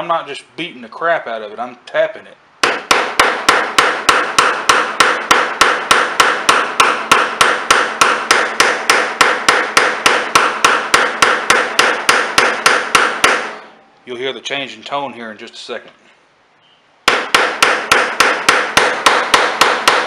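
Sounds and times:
hammer tapping on metal: 2.6 - 13.6, 17.1 - 20.0.

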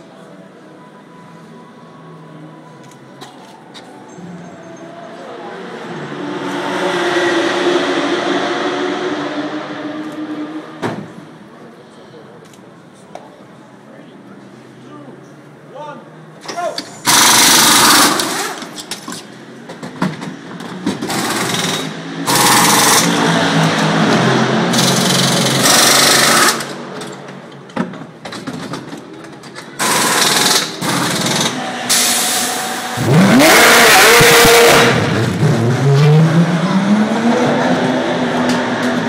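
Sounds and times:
race car engine revving: 5.5 - 10.8, 20.9 - 26.9, 29.8 - 39.0
pneumatic wheel guns rattling: 16.5 - 23.2, 24.7 - 32.6.

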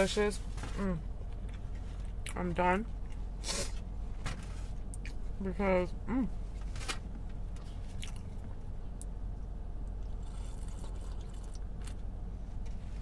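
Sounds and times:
steady low hum: 0.0 - 13.0
person slurping from a cup: 10.1 - 11.6.

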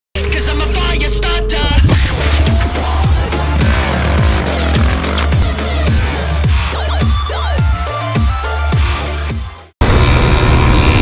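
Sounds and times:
background music with deep bass: 1.9 - 9.7.

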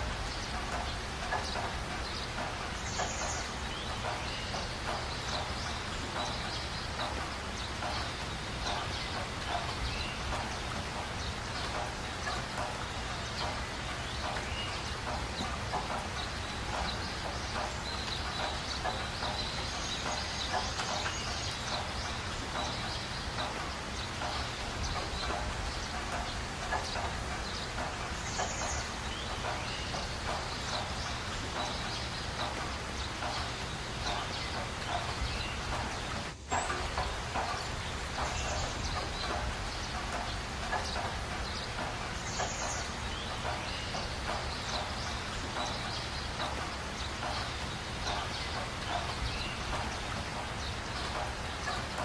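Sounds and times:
short irregular ticks: 0.0 - 52.0.

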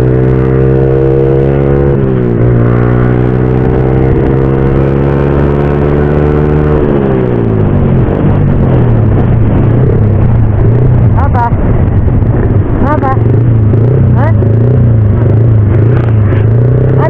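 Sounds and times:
motorcycle engine running: 0.0 - 17.0
rushing noise: 6.7 - 17.0.

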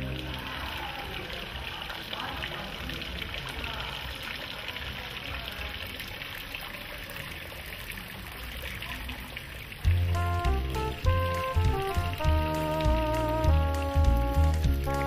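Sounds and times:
music: 0.0 - 1.4, 9.9 - 15.0
fountain water trickling: 0.0 - 15.0.

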